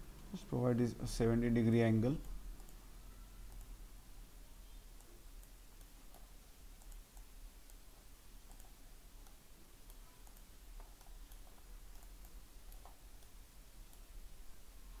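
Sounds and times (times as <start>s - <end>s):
low steady hum: 0.0s - 15.0s
computer mouse clicks: 2.2s - 2.8s, 3.4s - 3.8s, 4.9s - 14.1s.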